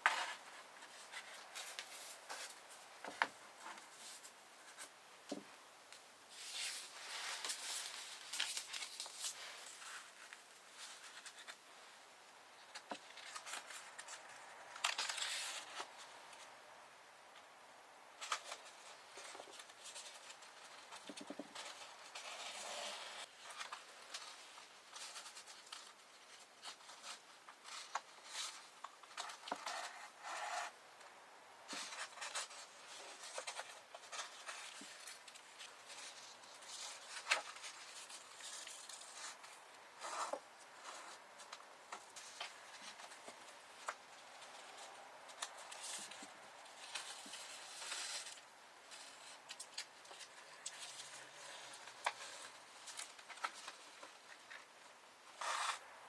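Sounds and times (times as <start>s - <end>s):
paper rustling: 6.3s - 11.7s, 12.7s - 16.0s, 31.7s - 54.7s, 55.4s - 55.8s
needle and thread through paper: 18.2s - 30.8s, 55.3s - 55.9s.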